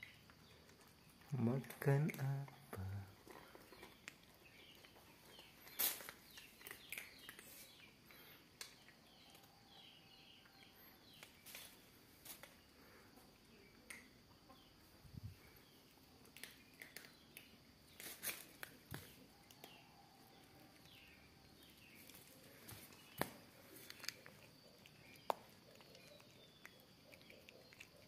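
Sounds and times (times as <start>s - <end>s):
cats crunching dry kibble: 0.0s - 9.8s, 15.4s - 28.0s
insects chirring: 0.0s - 28.0s.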